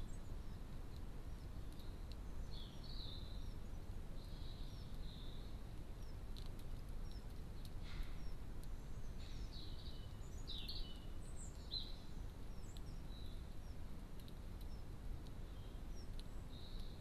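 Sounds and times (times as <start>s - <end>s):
songbirds chirping and twittering: 0.0s - 17.0s.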